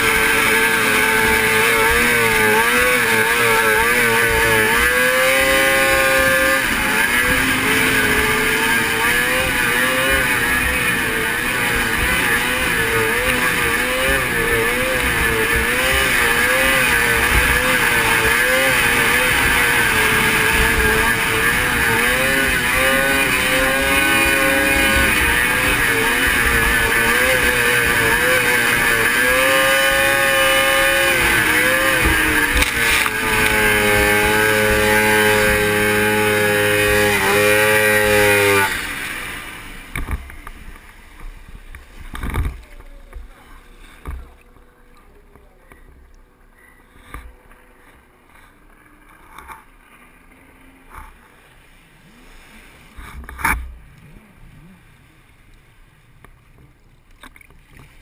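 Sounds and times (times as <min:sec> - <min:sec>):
snowmobile engine running hard: 0:00.0 - 0:55.1
water sloshing and splashes: 0:55.0 - 0:58.0.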